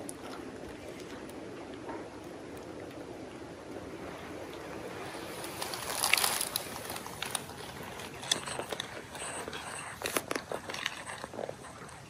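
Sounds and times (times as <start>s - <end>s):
leaves crunching underfoot: 5.2s - 8.9s.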